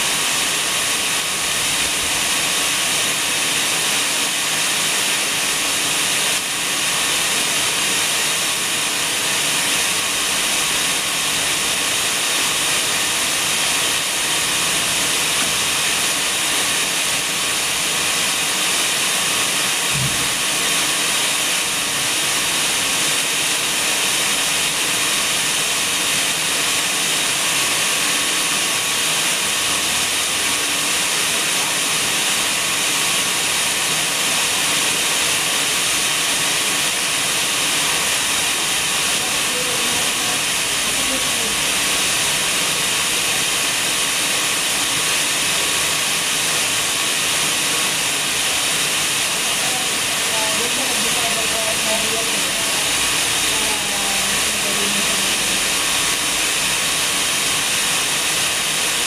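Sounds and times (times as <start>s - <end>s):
steady even hiss: 31.5s - 59.0s.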